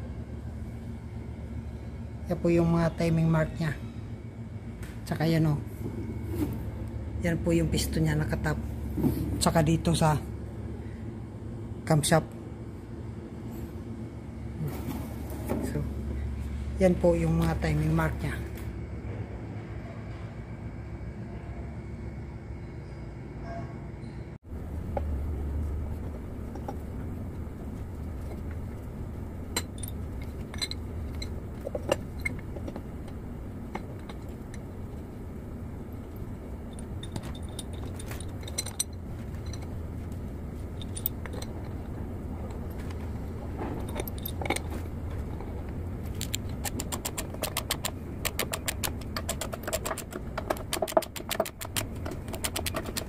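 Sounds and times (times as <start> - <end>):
steady low hum: 0.0 - 53.0
metal tool clinks: 36.6 - 39.8.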